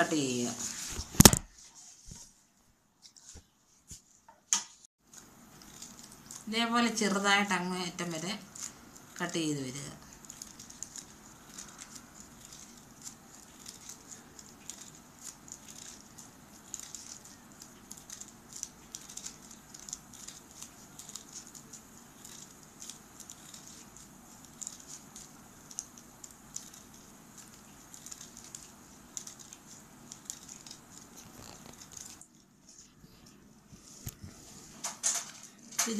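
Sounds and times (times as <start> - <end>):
scissors snipping paper: 5.1 - 7.0, 10.1 - 32.3.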